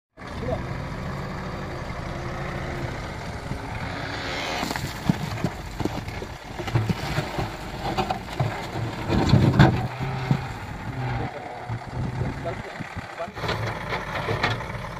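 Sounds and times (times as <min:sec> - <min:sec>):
diesel engine running: 0:00.2 - 0:14.9
rocks knocking and crunching: 0:04.5 - 0:11.0.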